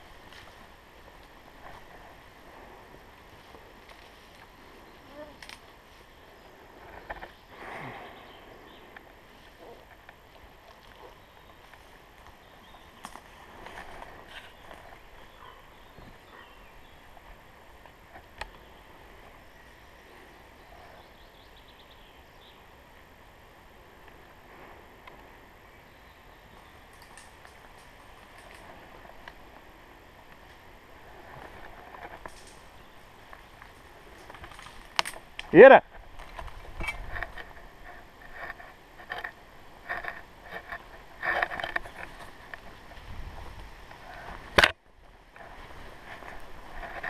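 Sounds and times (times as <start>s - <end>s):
footsteps through undergrowth: 0.0s - 19.9s, 26.3s - 47.0s
faint bird chirps: 14.4s - 17.2s
gear rustling: 26.9s - 44.5s.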